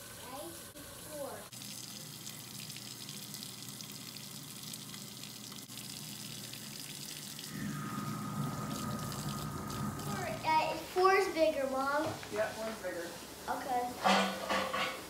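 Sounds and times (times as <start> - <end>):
bottle rinsed under water: 1.5 - 11.2
low hum with high tone: 7.5 - 11.9.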